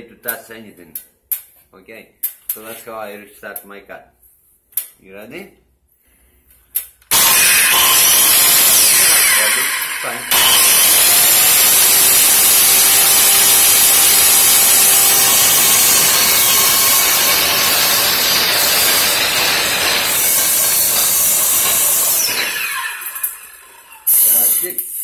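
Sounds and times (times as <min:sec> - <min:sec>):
saw blade spinning down: 0:07.1 - 0:24.8
circular saw cutting plastic: 0:07.1 - 0:25.0.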